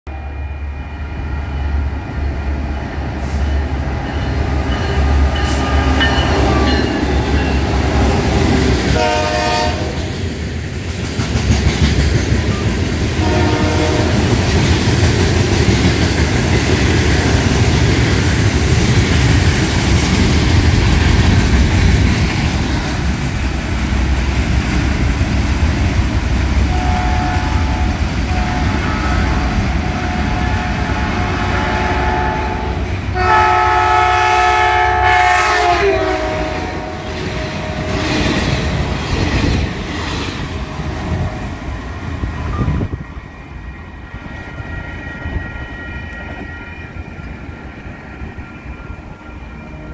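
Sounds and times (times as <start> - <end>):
train horn blasts: 3.2 - 8.3, 8.9 - 10.1, 13.2 - 14.5, 26.6 - 38.4.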